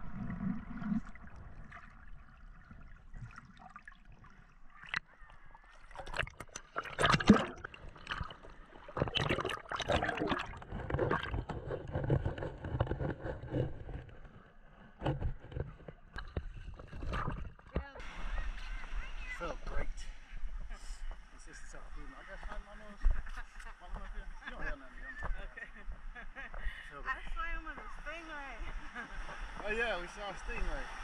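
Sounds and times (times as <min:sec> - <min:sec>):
water sloshing and splashing: 0:00.0 - 0:18.9
water gurgles: 0:00.0 - 0:20.7.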